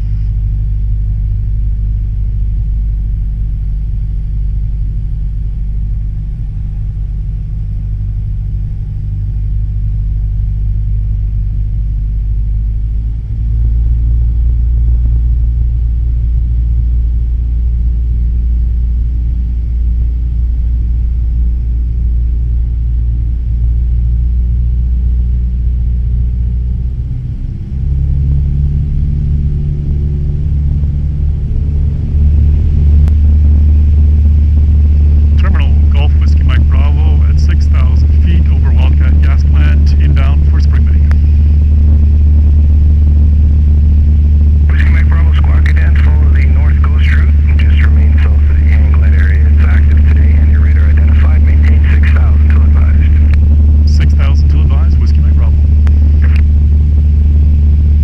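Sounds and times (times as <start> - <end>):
small plane engine droning in cabin: 0.0 - 58.0.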